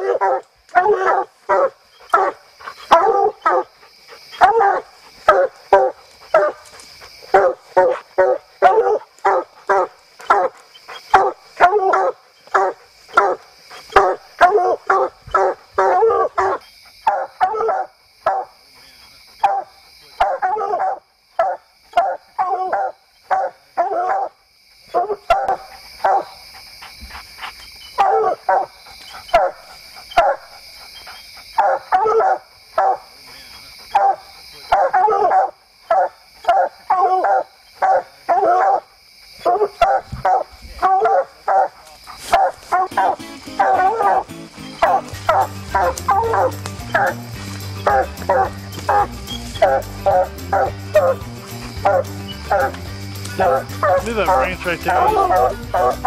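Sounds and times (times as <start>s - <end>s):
hounds barking: 0.0s - 56.0s.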